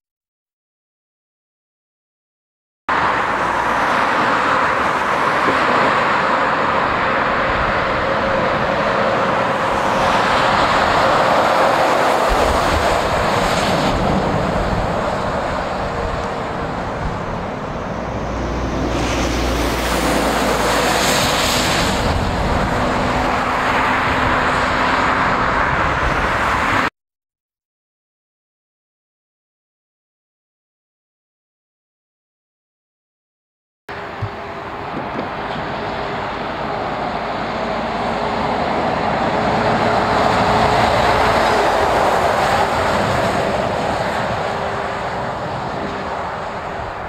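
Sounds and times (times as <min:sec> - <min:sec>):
heavy lorries passing: 0:02.9 - 0:26.9, 0:33.9 - 0:47.0.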